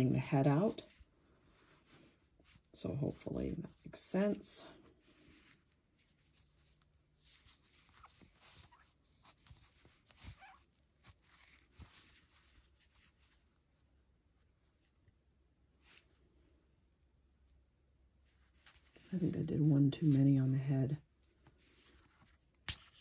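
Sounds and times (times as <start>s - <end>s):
yarn squeaking on crochet hook: 10.2s - 10.7s.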